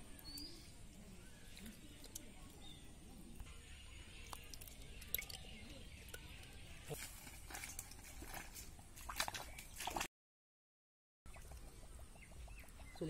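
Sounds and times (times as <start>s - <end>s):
wet mud squelches and clicks: 1.2s - 10.1s.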